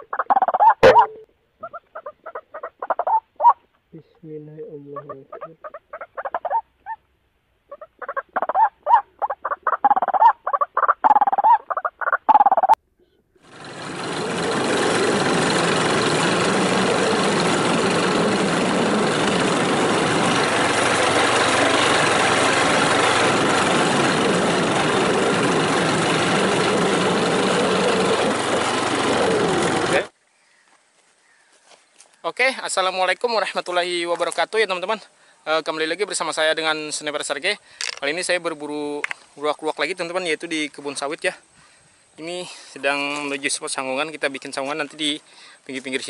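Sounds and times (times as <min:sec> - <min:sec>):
bird calls: 0:00.0 - 0:07.0, 0:07.7 - 0:12.8, 0:30.2 - 0:32.4
motorcycle engine running: 0:13.4 - 0:30.1
wind and road noise: 0:13.4 - 0:30.1.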